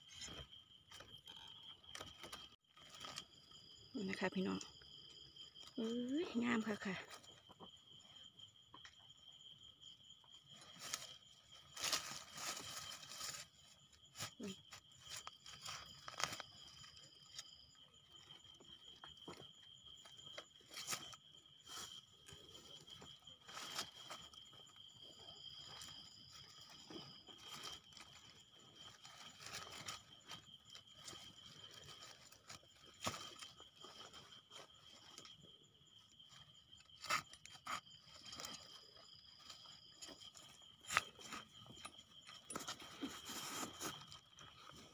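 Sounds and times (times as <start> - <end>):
night insects trilling: 0.0 - 44.9
crunches and rustles: 10.3 - 44.9
hands scraping soil: 36.6 - 44.9.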